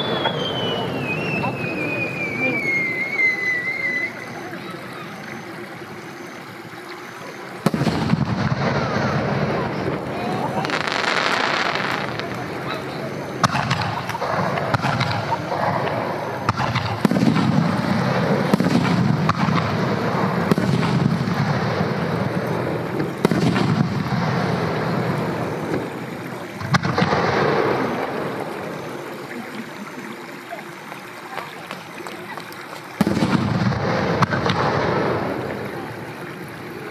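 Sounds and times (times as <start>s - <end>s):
firework shells bursting: 7.6s - 29.4s, 31.7s - 35.6s.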